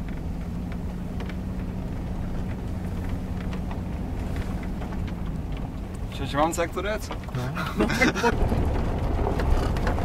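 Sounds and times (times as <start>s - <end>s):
car engine droning: 0.0s - 10.0s.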